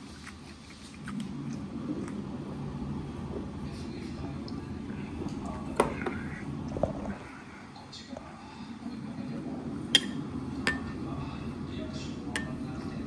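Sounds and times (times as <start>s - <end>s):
spoon clinking on bowl: 10.0s - 11.0s, 12.4s - 12.6s.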